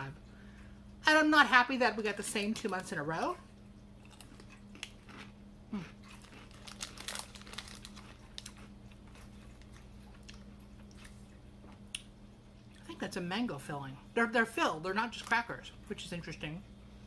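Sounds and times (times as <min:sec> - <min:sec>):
crunching crackers: 0:04.0 - 0:12.1.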